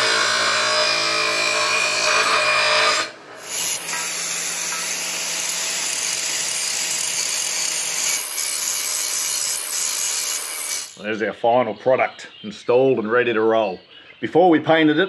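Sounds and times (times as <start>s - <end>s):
angle grinder grinding with whine: 0.0s - 11.0s
bench grinder grinding steel: 0.0s - 11.0s.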